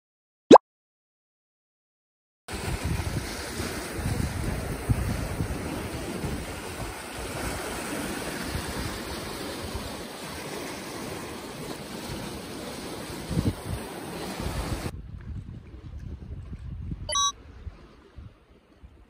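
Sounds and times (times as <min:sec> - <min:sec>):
wind buffeting microphone: 0:02.5 - 0:09.9, 0:13.2 - 0:19.0
waves washing over rocks: 0:02.5 - 0:14.9.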